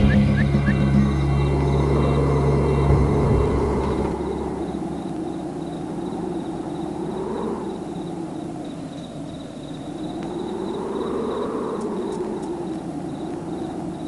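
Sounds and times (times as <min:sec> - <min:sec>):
low music notes: 0:00.0 - 0:04.6
faint insect chirping: 0:00.0 - 0:14.0
steady background hiss: 0:00.0 - 0:14.0.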